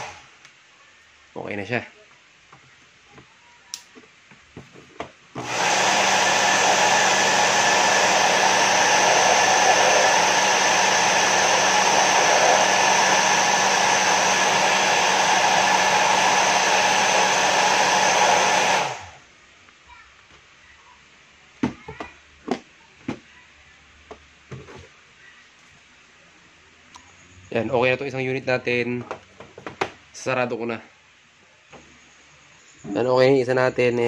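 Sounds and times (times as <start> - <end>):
hair dryer running: 0.0 - 0.3, 5.4 - 19.2.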